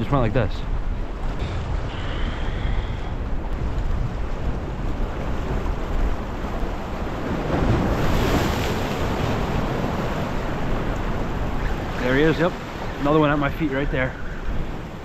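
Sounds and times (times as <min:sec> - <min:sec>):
waves breaking over boulders: 0:00.0 - 0:15.0
wind buffeting microphone: 0:00.0 - 0:15.0.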